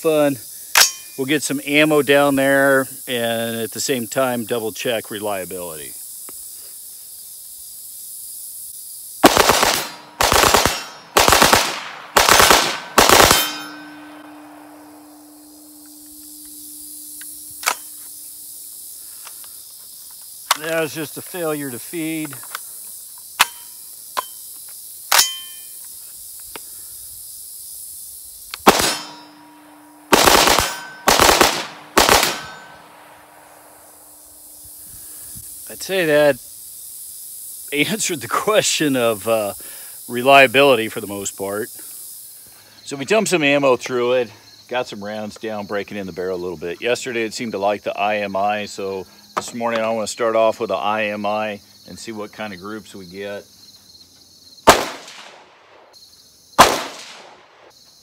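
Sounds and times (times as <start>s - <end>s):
rifle action metallic clack: 0.8s - 1.2s, 17.6s - 17.9s
rifle rapid fire bursts: 9.2s - 13.7s, 28.6s - 29.1s, 30.1s - 33.1s, 54.7s - 55.5s, 56.6s - 57.4s.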